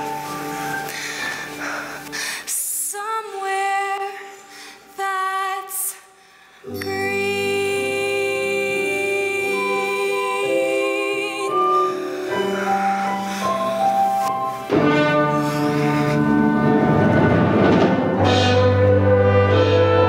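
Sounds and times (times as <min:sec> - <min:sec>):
stage musical accompaniment: 0:00.0 - 0:02.5, 0:06.7 - 0:20.0
woman singing with vibrato: 0:02.5 - 0:12.6.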